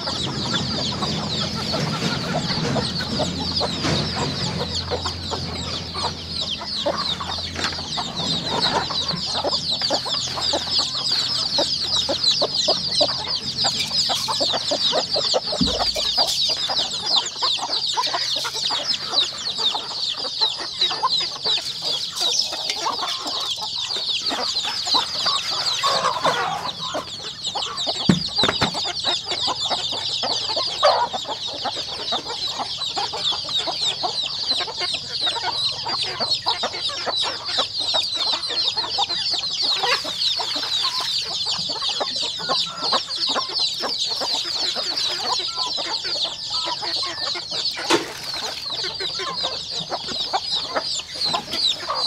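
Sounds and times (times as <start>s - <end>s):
chicks peeping: 0.0s - 52.0s
lower chicken calls: 0.0s - 52.0s
dull thump: 15.6s - 16.3s.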